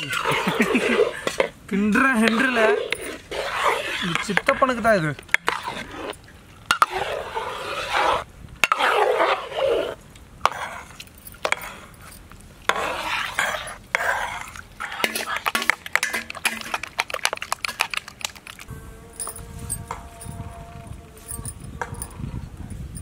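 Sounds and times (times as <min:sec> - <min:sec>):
ladle clinking and scraping pot: 0:02.2 - 0:09.7, 0:10.4 - 0:20.4
wet swishing of batter: 0:02.3 - 0:04.6, 0:12.6 - 0:18.7.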